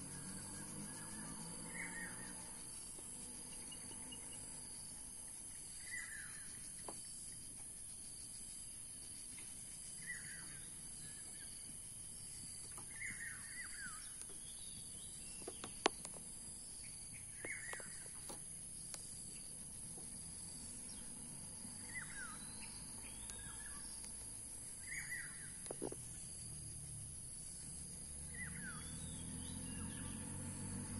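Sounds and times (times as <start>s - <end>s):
high-pitched insect drone: 0.0s - 6.8s.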